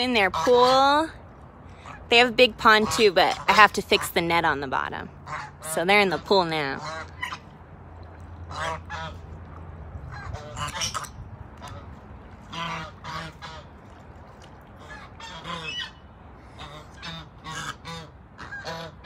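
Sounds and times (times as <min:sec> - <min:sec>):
geese honking: 0:05.2 - 0:07.5, 0:08.5 - 0:09.2, 0:10.1 - 0:13.8, 0:14.8 - 0:19.0.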